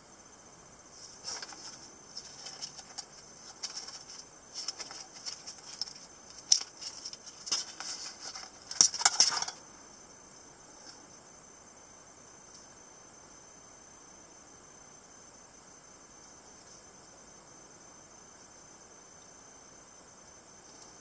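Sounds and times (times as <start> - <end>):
fabric rustling: 1.0 - 9.5.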